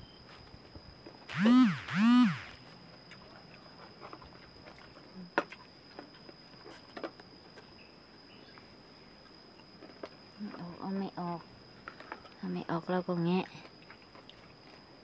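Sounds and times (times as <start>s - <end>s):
loud rising and falling call: 1.3s - 2.6s.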